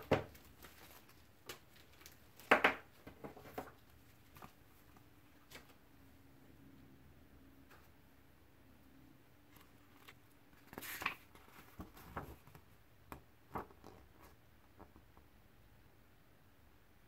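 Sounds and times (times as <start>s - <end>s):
paper pages rustling: 0.2s - 2.5s, 3.2s - 5.8s, 9.5s - 14.4s
light paper crinkles and ticks: 0.3s - 2.5s, 3.4s - 5.8s, 9.5s - 15.0s.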